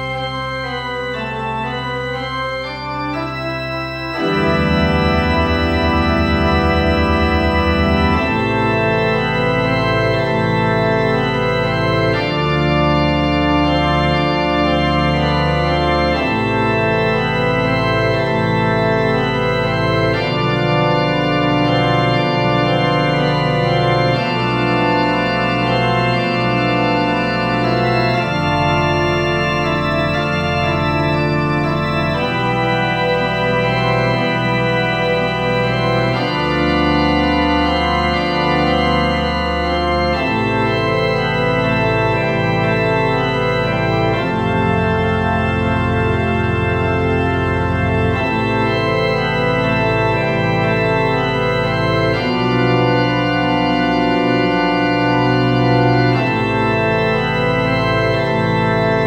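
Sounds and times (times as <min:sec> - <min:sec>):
organ keyboard chords: 0:00.0 - 0:59.0.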